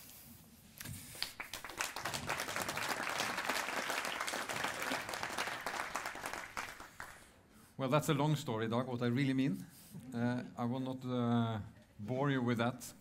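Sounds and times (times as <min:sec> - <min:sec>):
audience applauding: 0:01.2 - 0:07.3.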